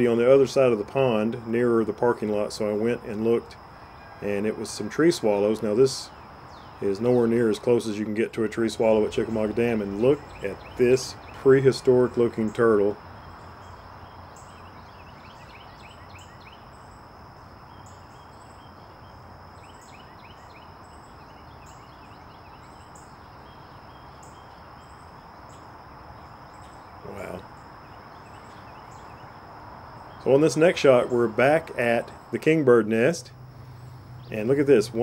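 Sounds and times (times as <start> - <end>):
loud bird call: 2.4 - 7.8, 8.4 - 35.0
bird twittering: 6.1 - 7.3, 8.8 - 17.0, 17.6 - 29.4.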